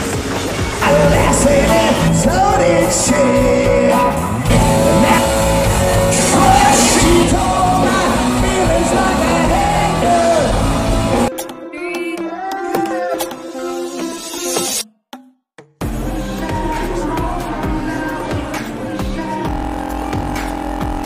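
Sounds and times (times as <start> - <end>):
live rock band: 0.0 - 11.3
man singing: 0.8 - 14.6, 16.0 - 19.7.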